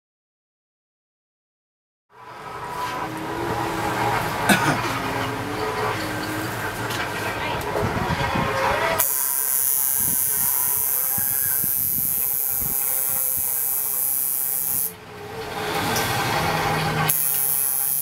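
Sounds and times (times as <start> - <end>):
high-pitched hiss: 9.0 - 14.9
tattoo machine running: 9.0 - 15.0, 16.5 - 18.0.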